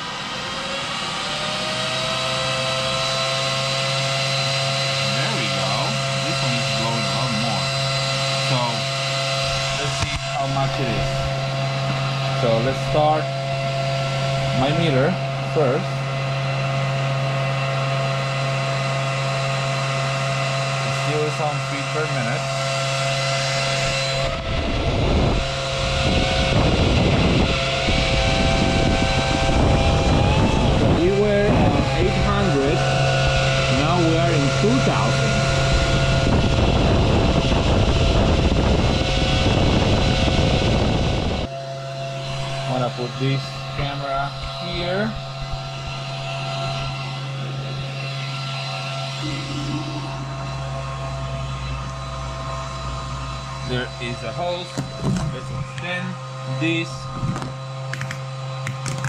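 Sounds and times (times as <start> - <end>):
exhaust fan whirring: 0.0 - 59.0
air buffeting anemometer: 22.4 - 54.1
deeper rumble: 23.0 - 53.7.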